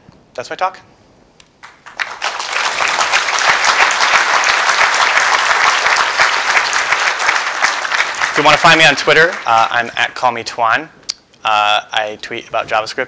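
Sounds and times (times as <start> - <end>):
audience applauding: 1.6 - 10.0.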